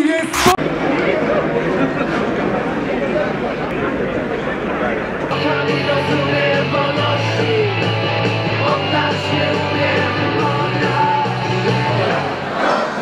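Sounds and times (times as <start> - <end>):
rock music with guitar: 5.3 - 12.3.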